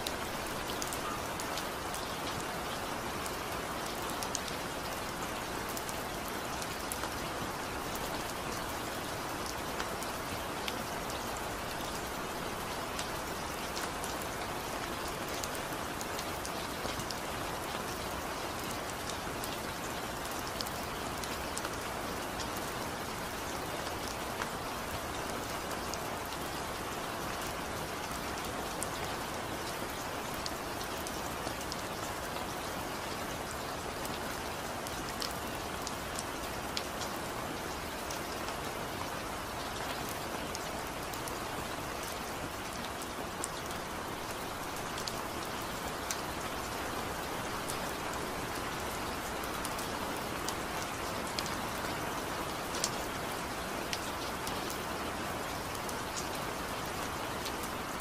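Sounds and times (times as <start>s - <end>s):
raindrops ticking on a surface: 0.0s - 58.0s
steady rain falling: 0.0s - 58.0s.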